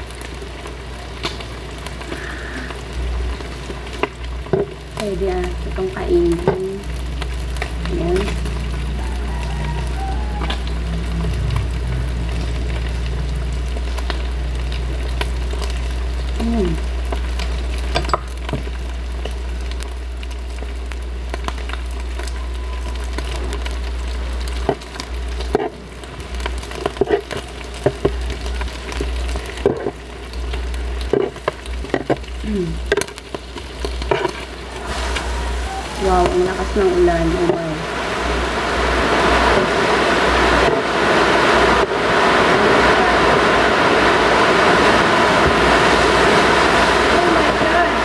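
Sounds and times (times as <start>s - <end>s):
meat sizzling on a grill pan: 0.0s - 47.8s.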